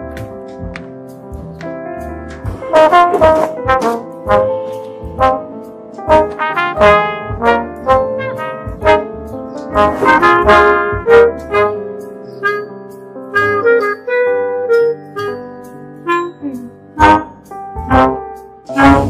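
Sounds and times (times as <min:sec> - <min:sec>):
steady bass notes: 0:00.0 - 0:12.0, 0:17.0 - 0:19.0
jazzy film score music: 0:00.0 - 0:19.0
loud brass melody: 0:02.6 - 0:15.4, 0:16.1 - 0:16.4, 0:17.0 - 0:19.0.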